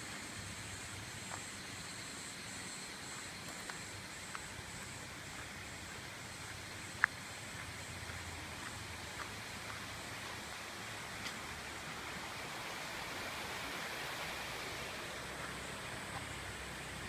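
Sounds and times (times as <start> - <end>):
faint high whine: 0.0 - 17.0
mountain stream rushing: 0.0 - 17.0
faint ticks: 6.4 - 9.8.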